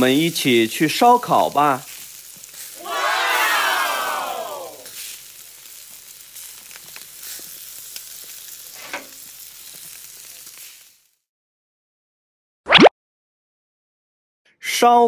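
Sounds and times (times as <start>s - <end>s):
meat sizzling on grill: 0.0s - 11.3s.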